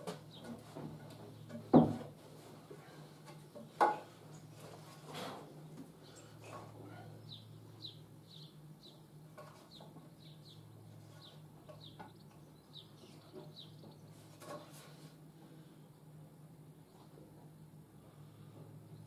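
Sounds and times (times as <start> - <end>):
steady low hum: 0.3 - 19.0
small bird chirping: 7.2 - 14.3.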